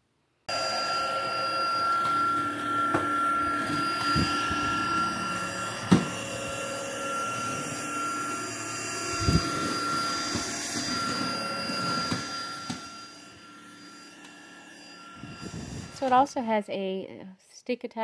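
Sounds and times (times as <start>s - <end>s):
vacuum cleaner motor whine: 0.5s - 16.4s.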